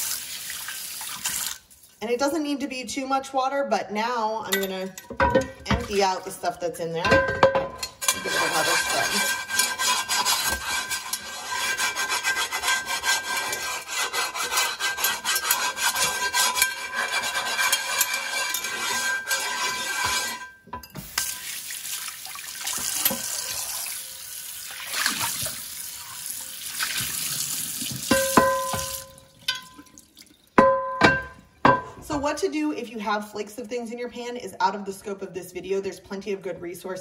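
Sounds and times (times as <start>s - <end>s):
chainmail scrubber scraping skillet: 8.0s - 20.6s.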